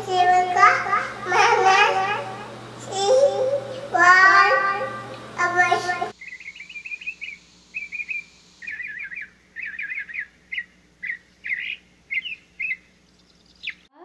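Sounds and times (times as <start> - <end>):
small bird chirping: 6.1 - 13.9.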